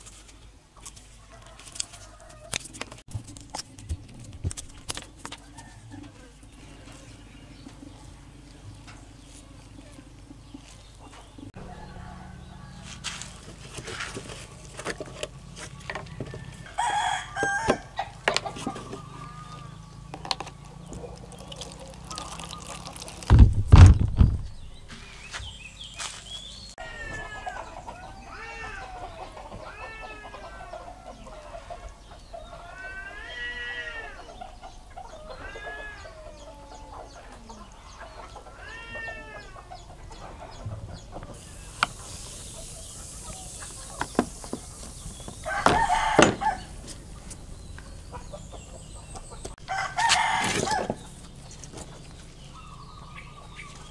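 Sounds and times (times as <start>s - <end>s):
chickens calling: 4.7s - 23.3s, 24.5s - 53.9s
loud low thump: 23.3s - 24.6s.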